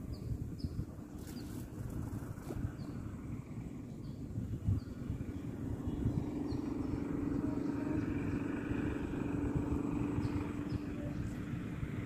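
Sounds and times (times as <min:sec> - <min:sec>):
engine running steadily: 0:00.0 - 0:12.0
low uneven rumble: 0:00.0 - 0:12.0.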